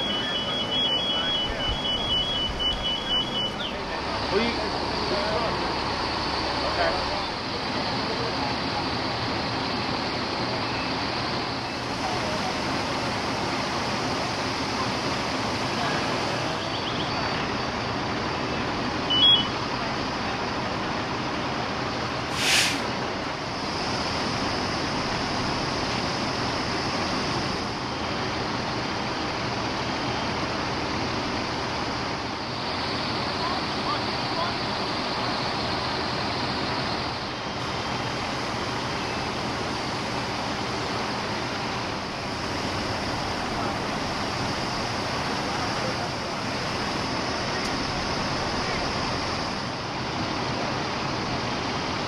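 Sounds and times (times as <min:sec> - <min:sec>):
short high beep: 0:00.0 - 0:03.8, 0:19.1 - 0:19.6
fire engines running: 0:00.0 - 0:52.0
water spraying from hoses: 0:22.3 - 0:24.9.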